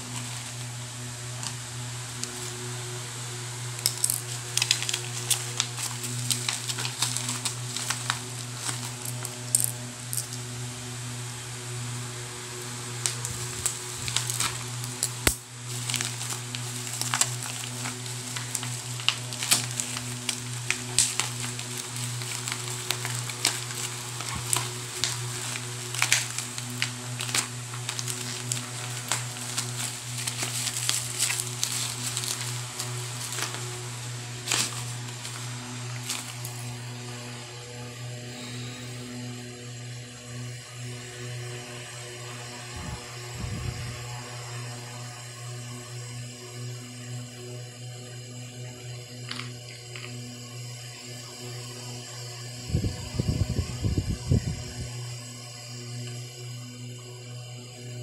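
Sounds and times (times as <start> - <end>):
plastic packaging crinkling: 0.0 - 2.6, 3.7 - 10.4, 13.0 - 36.8
steady low hum: 0.0 - 58.0.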